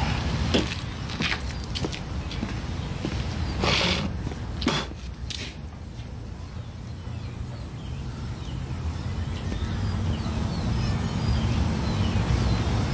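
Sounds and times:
distant traffic rumble: 0.0 - 12.9.

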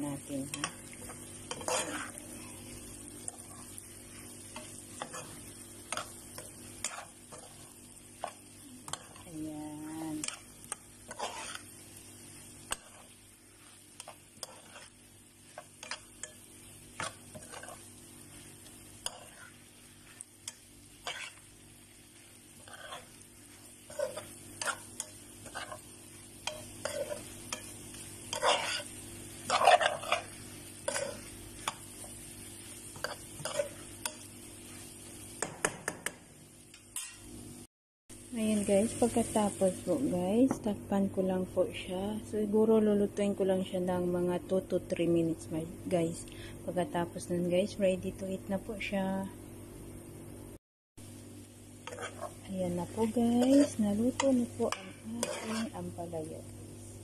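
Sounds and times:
faint sizzle from pan: 0.0 - 57.0
spatula scraping a frying pan: 0.5 - 2.5, 3.2 - 9.3, 10.2 - 11.8, 12.4 - 35.0, 51.8 - 55.9.

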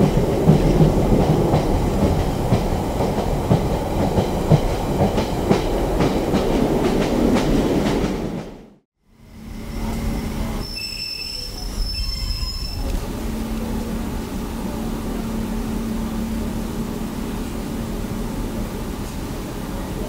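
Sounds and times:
train brakes screeching: 9.2 - 16.0.

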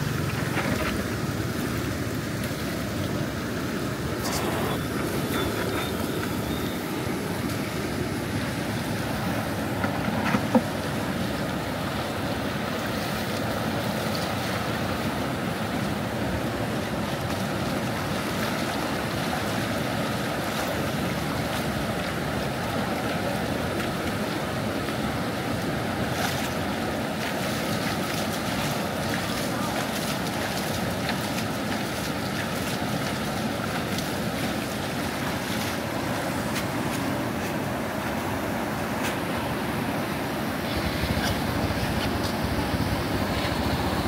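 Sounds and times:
rushing floodwater: 0.0 - 44.0.

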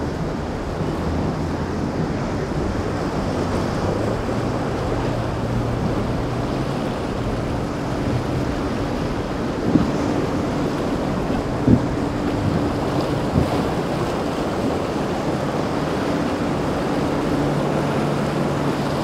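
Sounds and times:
motorboat engine hum: 0.0 - 19.0
rushing water and spray: 0.0 - 19.0
wind noise on microphone: 0.0 - 19.0.

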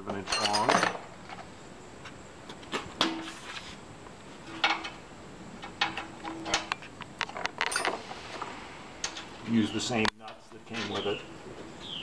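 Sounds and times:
bolts and nuts clinking on metal: 0.0 - 1.0, 4.4 - 5.0, 5.6 - 8.1, 9.0 - 11.4.

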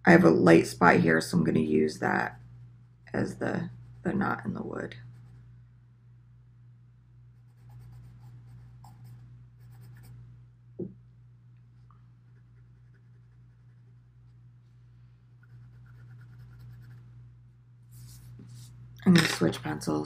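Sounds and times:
pencil scratching on paper: 7.5 - 10.2, 15.4 - 17.1.

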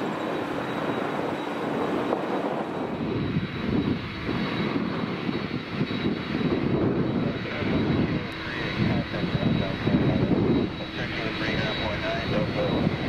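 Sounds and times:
jet engines at high thrust: 0.0 - 13.0
deep uneven rumble: 6.0 - 13.0.

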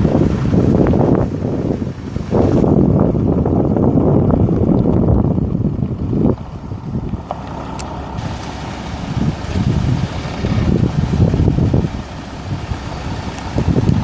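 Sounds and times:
pickup truck engine rumbling: 0.0 - 14.0
wind gusting on microphone: 0.0 - 14.0
tyres on gravel: 1.6 - 14.0.

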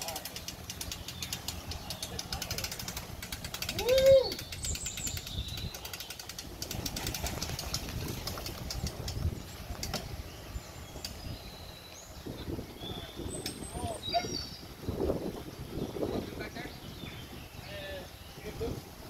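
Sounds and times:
small birds chirping: 0.0 - 19.0
loud rising and falling call: 3.7 - 4.5.

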